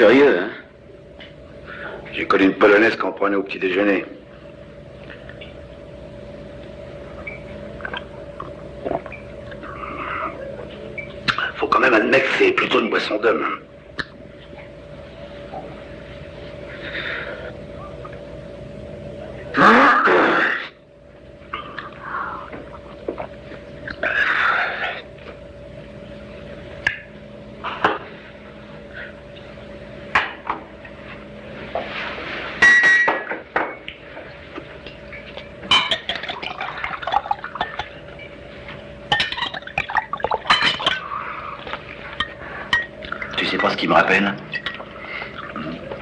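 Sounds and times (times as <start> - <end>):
faint steady hum: 0.0 - 46.0
glasses and bottles clinking: 35.7 - 37.9, 39.1 - 41.0
liquid pouring: 36.0 - 38.0.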